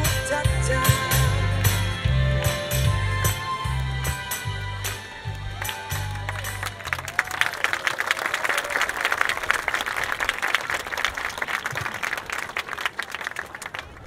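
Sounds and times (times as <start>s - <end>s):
audience applause: 5.2s - 14.0s.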